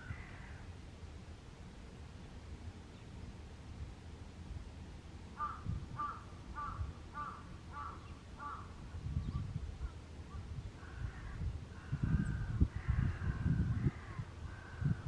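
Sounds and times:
crow cawing: 0:00.0 - 0:00.6, 0:05.4 - 0:08.7, 0:10.8 - 0:15.0.

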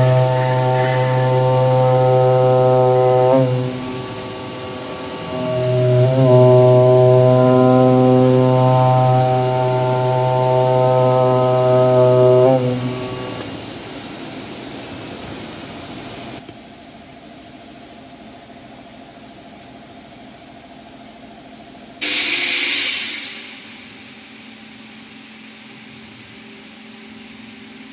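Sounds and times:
cutting machine buzzing: 0:00.0 - 0:13.5
sudden loud hiss: 0:00.0 - 0:16.4, 0:22.0 - 0:25.1
faint machine hiss: 0:00.0 - 0:27.9.

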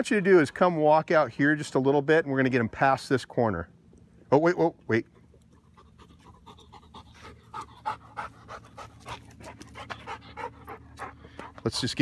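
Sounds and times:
dog panting: 0:05.5 - 0:11.8.

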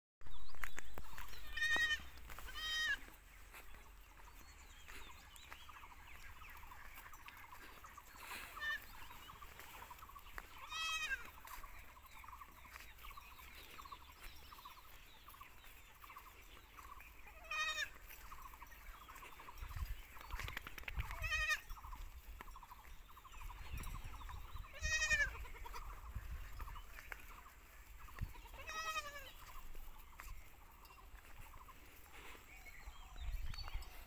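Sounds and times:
goats bleating: 0:01.2 - 0:03.2, 0:08.4 - 0:09.1, 0:10.4 - 0:11.6, 0:17.3 - 0:18.3, 0:21.1 - 0:21.7, 0:24.6 - 0:26.0, 0:28.2 - 0:29.6.

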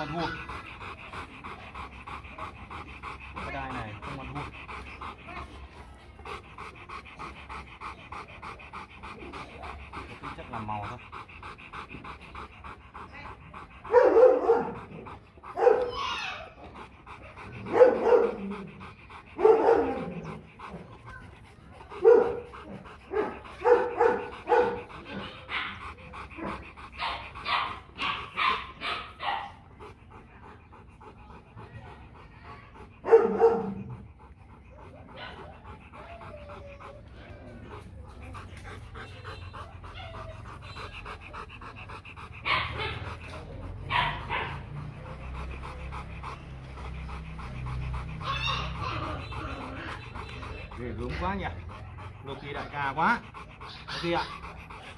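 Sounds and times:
dog panting: 0:00.0 - 0:54.9
dog barking: 0:13.9 - 0:14.8, 0:15.6 - 0:16.0, 0:17.7 - 0:18.4, 0:19.4 - 0:20.1, 0:22.0 - 0:22.5, 0:23.1 - 0:25.8, 0:27.0 - 0:29.6, 0:33.0 - 0:33.8, 0:42.4 - 0:43.1, 0:43.9 - 0:44.8.

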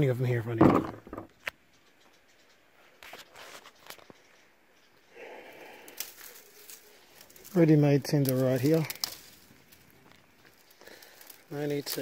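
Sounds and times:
footsteps rustling through dry scrub: 0:03.0 - 0:04.2, 0:05.6 - 0:12.0
twigs crackling: 0:03.0 - 0:12.0.

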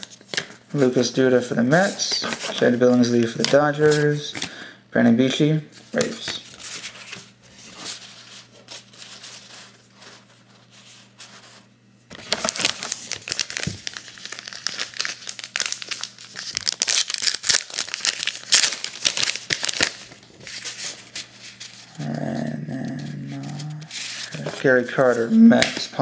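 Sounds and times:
plastic foil wrapper crinkling: 0:12.1 - 0:21.8.

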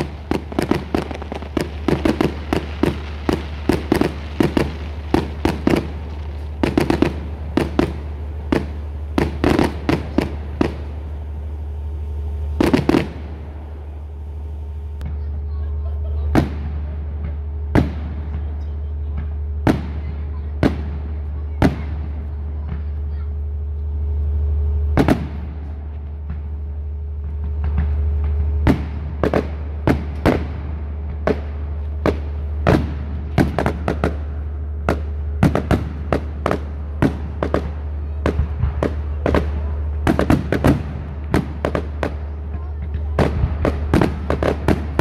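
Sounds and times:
firework shells bursting: 0:00.0 - 0:15.3, 0:25.0 - 0:45.0
steady low rumble: 0:00.0 - 0:45.0.

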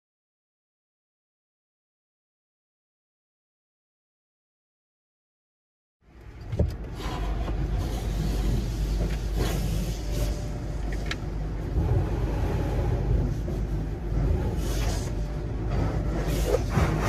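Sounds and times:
steady low rumble: 0:06.1 - 0:17.0
water spraying onto a car: 0:06.9 - 0:11.1.

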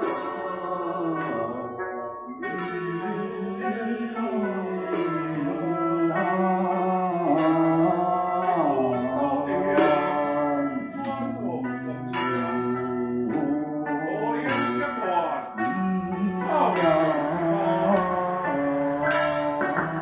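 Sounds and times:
sliding ritual melody: 0:00.0 - 0:20.0.

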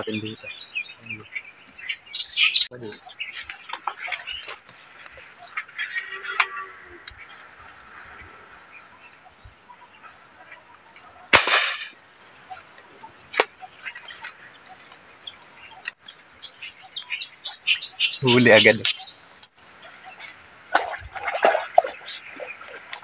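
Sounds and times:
airgun shot report: 0:11.3 - 0:12.0.

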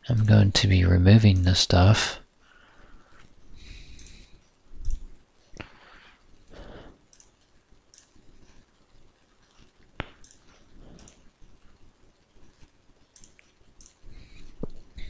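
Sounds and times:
computer mouse clicks: 0:03.9 - 0:05.7, 0:07.1 - 0:08.6, 0:09.4 - 0:11.8, 0:12.4 - 0:15.0.

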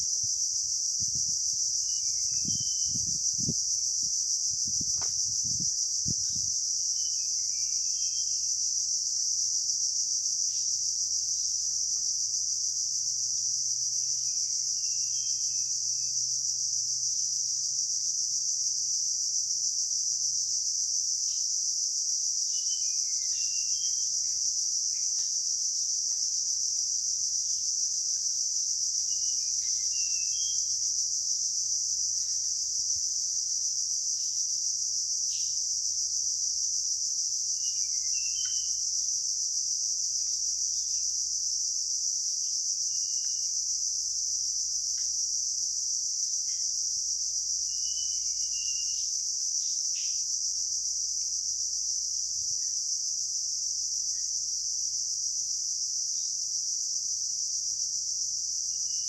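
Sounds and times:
insects shrilling: 0:00.0 - 0:11.9, 0:22.3 - 0:41.2, 0:46.2 - 0:50.8
bird chirping: 0:37.7 - 0:38.8.

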